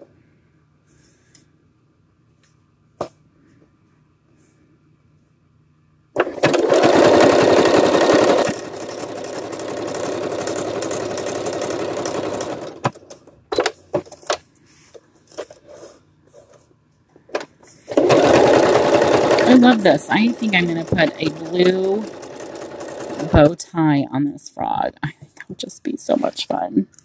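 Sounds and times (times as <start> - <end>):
sewing machine stitching: 6.2 - 13.7, 17.9 - 23.6.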